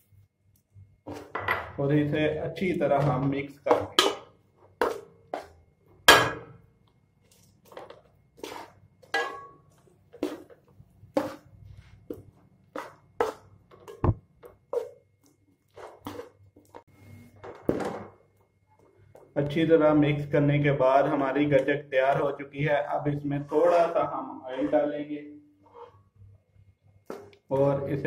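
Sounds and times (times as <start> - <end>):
metal ladle scraping a steel pan: 8.4 - 9.6, 23.4 - 25.0, 25.6 - 26.1.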